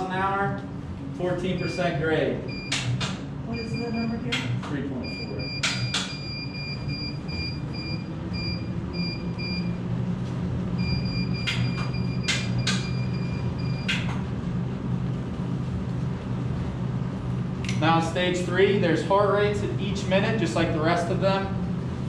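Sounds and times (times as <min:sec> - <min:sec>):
treadmill motor hum: 0:00.0 - 0:22.0
sharp clicks: 0:02.7 - 0:03.2
console beeps: 0:05.0 - 0:09.8.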